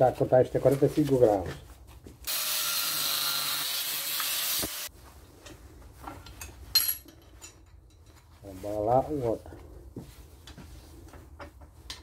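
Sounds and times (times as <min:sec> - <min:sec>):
angle grinder cutting steel: 0:02.3 - 0:04.9.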